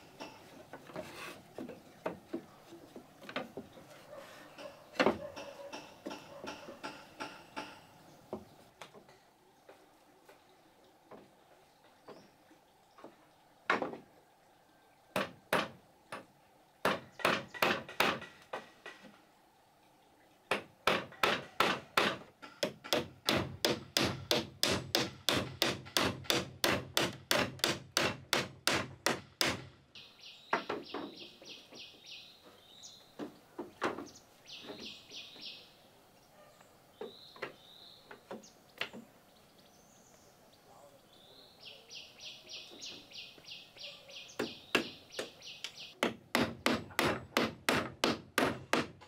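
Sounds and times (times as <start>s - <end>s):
hand tool striking wood: 4.6s - 8.5s, 15.2s - 19.1s, 20.5s - 29.7s, 46.0s - 49.0s
bird chirps: 30.0s - 33.2s, 34.0s - 46.0s.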